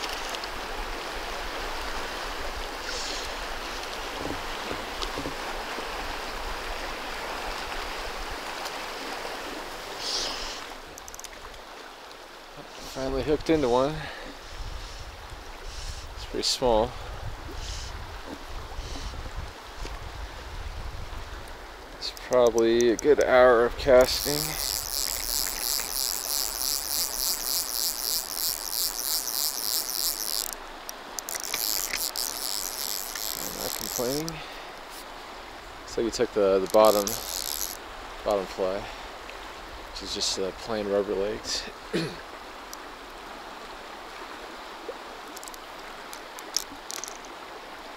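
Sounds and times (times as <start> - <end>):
faint ticks: 0.0 - 0.6, 10.0 - 13.5, 21.4 - 35.1, 35.9 - 37.8, 42.6 - 43.2, 45.2 - 47.4
fly reel clicking: 0.0 - 0.6, 10.0 - 11.4, 22.0 - 34.5, 36.6 - 37.9, 45.2 - 47.4
river water rushing: 0.0 - 14.6, 19.6 - 47.9.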